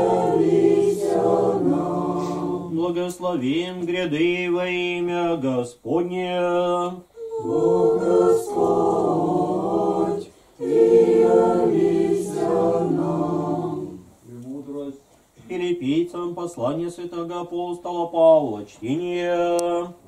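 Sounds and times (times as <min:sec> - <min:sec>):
a cappella choir chanting: 0:00.0 - 0:03.1, 0:06.2 - 0:14.2.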